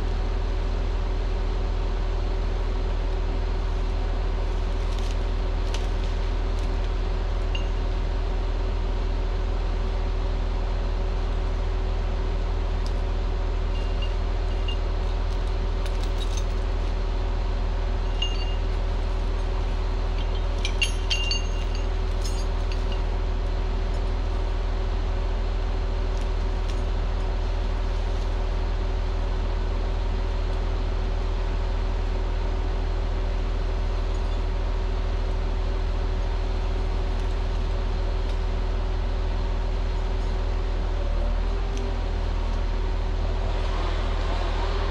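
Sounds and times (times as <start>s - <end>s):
diesel engine running steadily: 0.0s - 44.9s
light metallic clinks: 18.1s - 18.8s, 20.1s - 23.1s.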